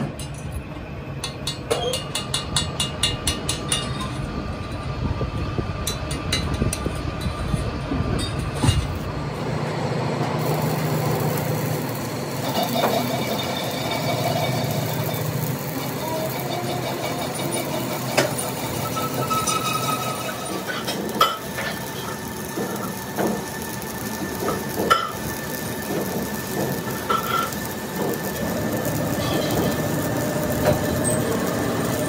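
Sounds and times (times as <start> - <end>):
welding arc crackling: 8.8 - 32.0.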